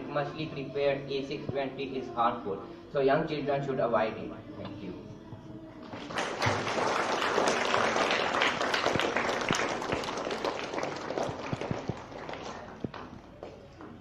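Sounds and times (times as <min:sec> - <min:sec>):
children applauding: 0:05.9 - 0:13.2.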